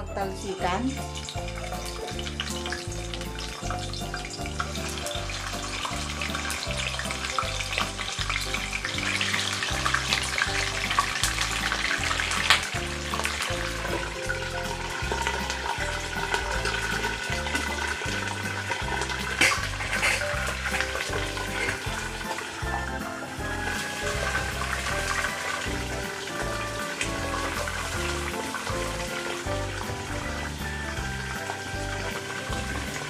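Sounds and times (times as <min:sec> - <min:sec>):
chicken wings frying in oil: 0:00.2 - 0:33.0.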